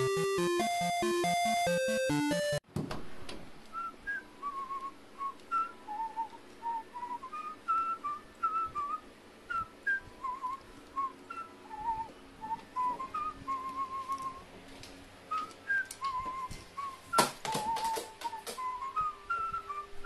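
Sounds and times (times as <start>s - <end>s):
person whistling a tune: 3.7s - 14.4s, 15.3s - 20.0s.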